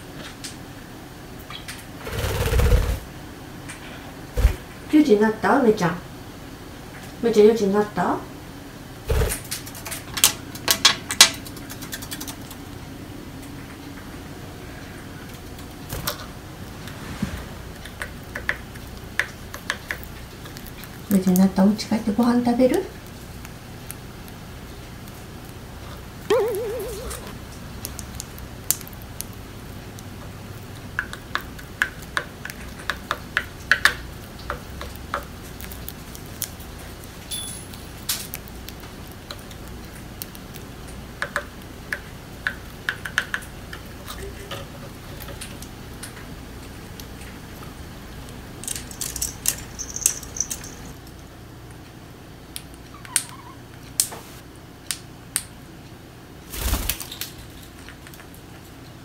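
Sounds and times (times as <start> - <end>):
bird pecking seeds: 9.1 - 12.8, 17.7 - 21.6, 22.9 - 44.3, 48.6 - 50.9.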